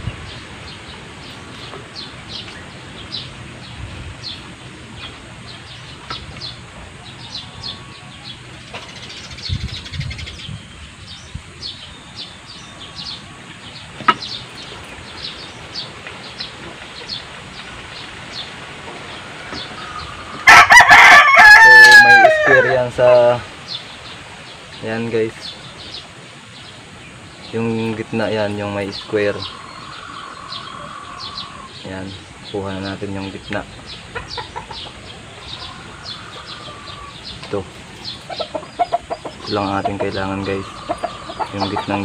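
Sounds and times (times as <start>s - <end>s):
birds chirping: 0.0s - 42.0s
rooster crowing: 19.2s - 23.0s, 35.4s - 37.3s.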